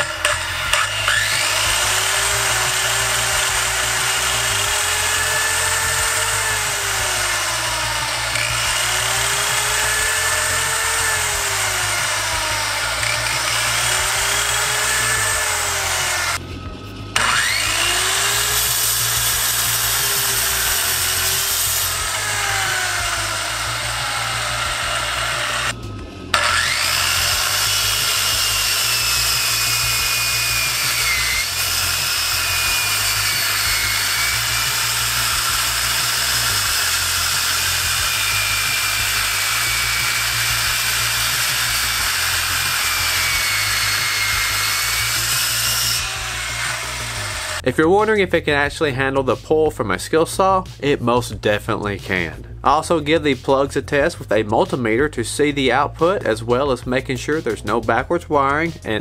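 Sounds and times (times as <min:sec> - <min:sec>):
circular saw cutting wood: 0:00.0 - 0:49.5.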